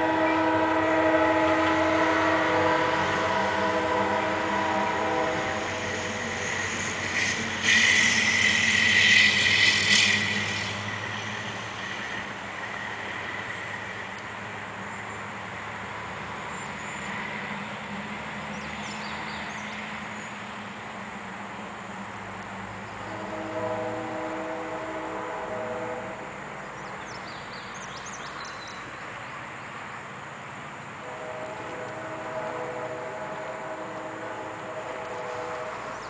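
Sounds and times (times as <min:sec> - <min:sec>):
locomotive horn chord: 0:00.0 - 0:10.7, 0:23.0 - 0:26.3, 0:31.0 - 0:36.0
high-pitched train screech with hiss: 0:00.0 - 0:14.2, 0:31.0 - 0:36.0.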